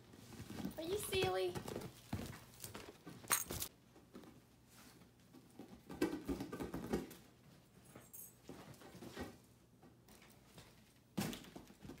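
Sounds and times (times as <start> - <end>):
hands and feet pattering on ball: 0.1 - 3.7.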